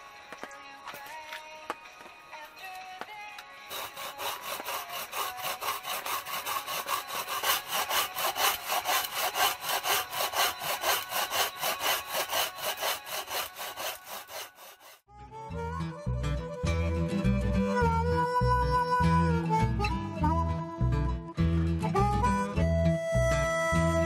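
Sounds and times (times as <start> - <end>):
music: 0.0 - 24.0
hand saw cutting log: 3.6 - 15.1.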